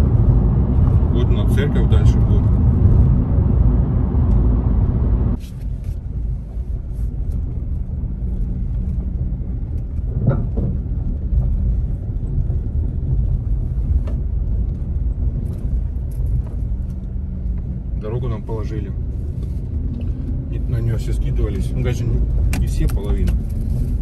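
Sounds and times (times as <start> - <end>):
low rumble on gravel road: 0.0 - 24.0
stones crackling under tyres: 7.1 - 24.0.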